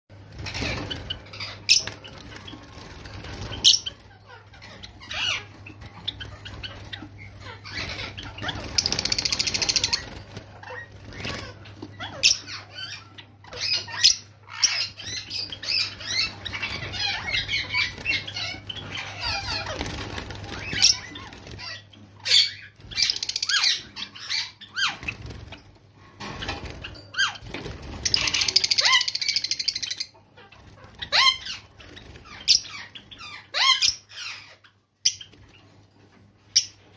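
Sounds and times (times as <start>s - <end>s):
wings fluttering: 0.1s - 33.9s
sparrows chirping and clicking: 0.1s - 36.9s.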